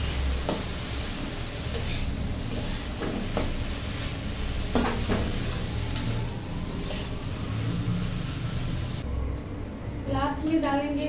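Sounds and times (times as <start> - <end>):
metal spatula scraping pan: 0.0 - 6.2.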